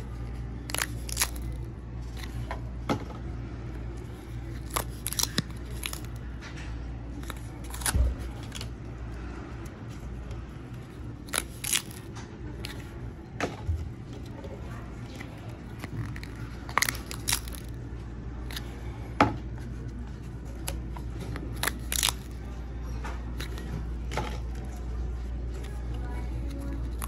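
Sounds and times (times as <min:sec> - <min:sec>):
low steady hum: 0:00.0 - 0:27.0
paper tabs tearing: 0:00.6 - 0:02.4, 0:04.1 - 0:06.2, 0:07.2 - 0:08.7, 0:10.8 - 0:12.9, 0:15.2 - 0:17.8, 0:21.3 - 0:22.4.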